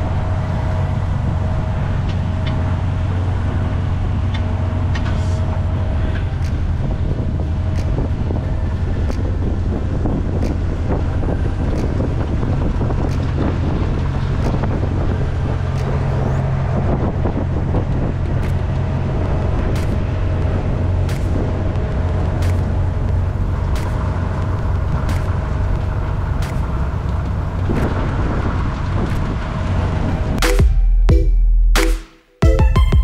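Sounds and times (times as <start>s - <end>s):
road noise: 0.0s - 31.8s
truck engine drone: 0.0s - 33.0s.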